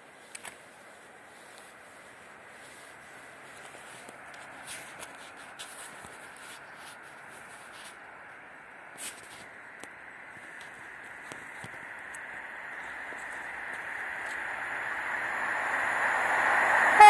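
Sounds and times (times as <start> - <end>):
steady hiss: 0.0 - 17.0
clicks and rustles near microphone: 3.5 - 8.0, 9.0 - 12.2.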